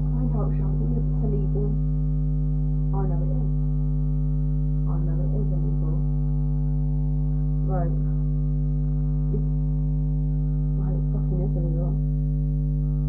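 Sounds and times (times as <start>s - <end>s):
quiet speech: 0.0s - 1.8s, 3.0s - 3.5s, 4.9s - 6.0s, 7.6s - 8.2s, 9.3s - 9.5s, 10.8s - 12.0s
electrical mains hum: 0.0s - 13.0s.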